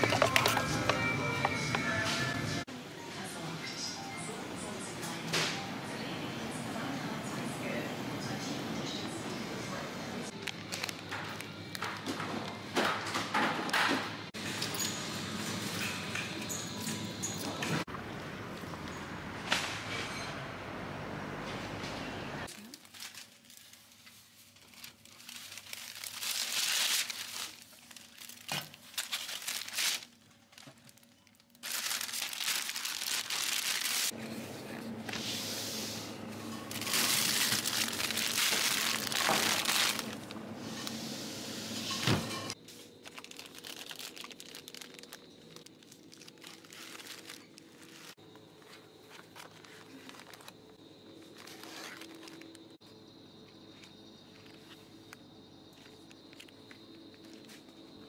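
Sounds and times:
crinkling and rustling: 0.0 - 2.3, 10.3 - 13.2, 22.4 - 34.2, 36.3 - 41.0, 41.9 - 52.8, 55.8 - 58.0.

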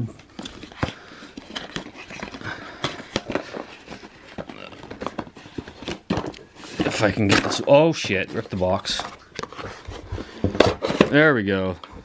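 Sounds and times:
box rustling: 0.2 - 11.6.

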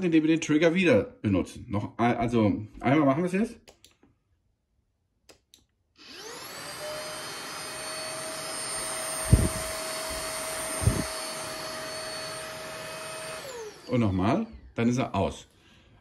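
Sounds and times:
vacuum motor whirring: 6.0 - 14.6.

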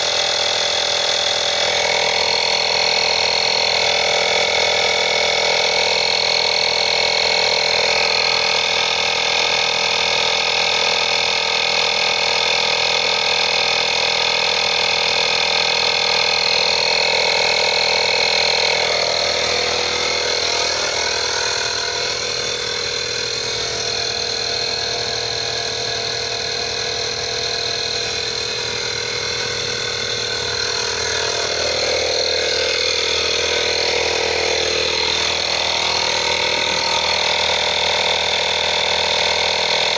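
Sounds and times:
air compressor running: 0.0 - 39.9.

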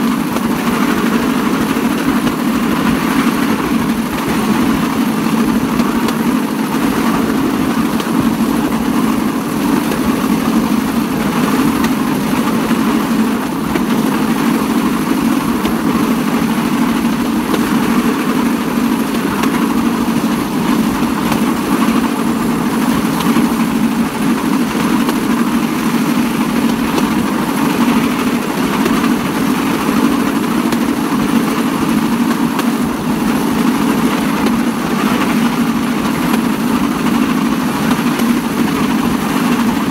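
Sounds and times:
rail cart on rails: 0.0 - 39.9.

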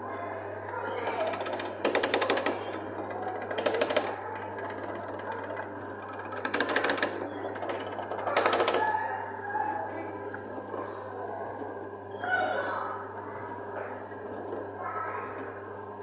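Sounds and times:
rapid rattling clicks: 0.6 - 9.0.

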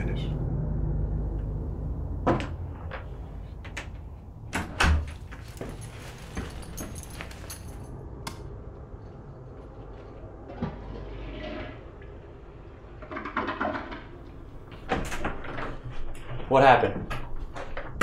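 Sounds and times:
low room rumble: 0.0 - 18.0.

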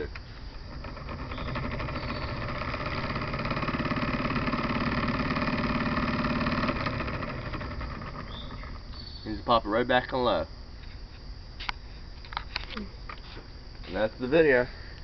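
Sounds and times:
electric motor whirring hum: 0.0 - 9.5.

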